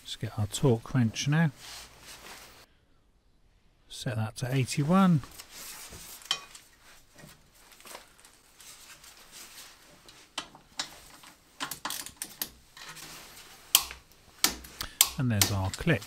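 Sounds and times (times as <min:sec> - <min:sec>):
torque wrench clicks: 0:13.8 - 0:15.6.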